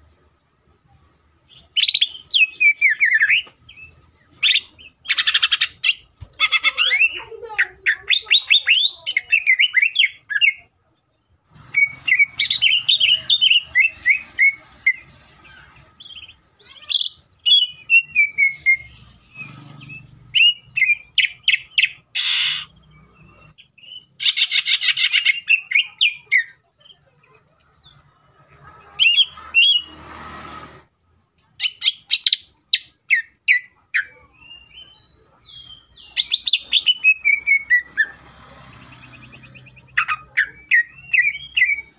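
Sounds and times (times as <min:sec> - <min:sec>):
bird singing chirps and trills: 0:11.8 - 0:28.1, 0:31.1 - 0:41.9.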